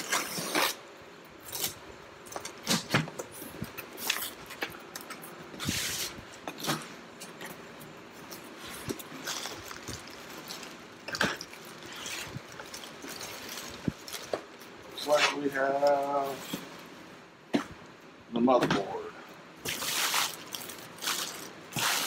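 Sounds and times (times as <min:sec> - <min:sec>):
plastic packing crinkling: 0:08.3 - 0:15.2, 0:19.6 - 0:22.0.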